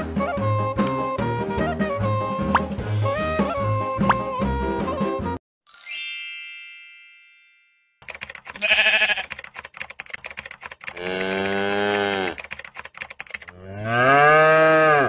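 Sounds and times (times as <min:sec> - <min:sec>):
bright chime: 0:05.7 - 0:08.0
rapid clicking: 0:08.0 - 0:13.6
sheep bleating: 0:08.5 - 0:09.3
cow mooing: 0:10.9 - 0:12.4, 0:13.6 - 0:15.0.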